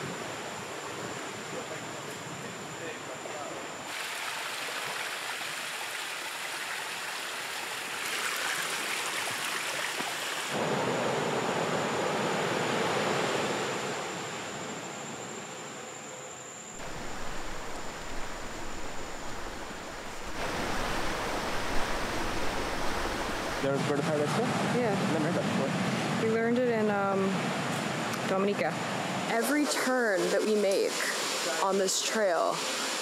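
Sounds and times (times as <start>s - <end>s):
stream running over rocks: 3.8s - 10.7s, 16.8s - 23.7s, 28.4s - 33.0s.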